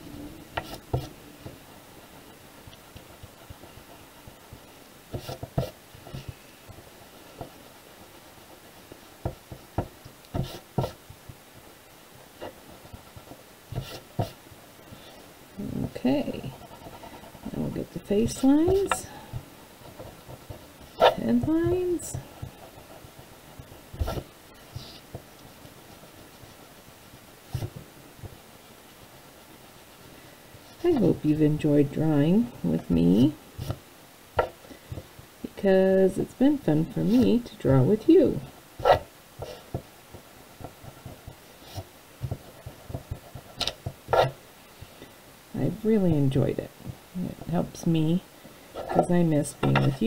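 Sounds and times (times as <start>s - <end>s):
eraser rubbing on paper: 3.0s - 6.3s, 10.4s - 11.0s, 12.4s - 14.4s
hand brushing across paper: 22.5s - 25.2s.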